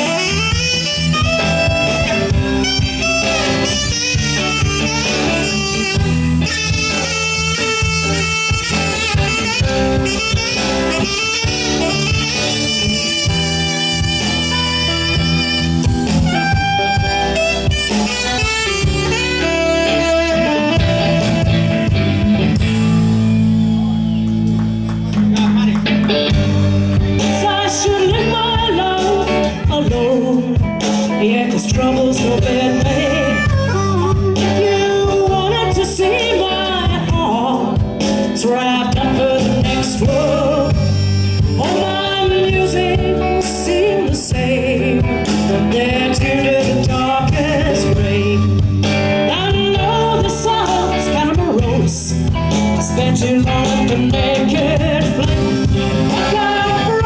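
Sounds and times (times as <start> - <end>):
blues harmonica solo: 0.0 - 24.9, 31.8 - 37.1, 39.2 - 57.0
blues band playing: 0.0 - 57.0.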